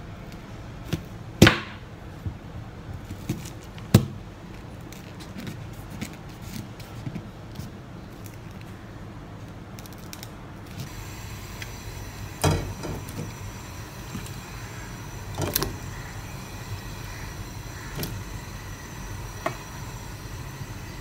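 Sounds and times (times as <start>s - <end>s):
steady low hum: 5.6s - 21.0s.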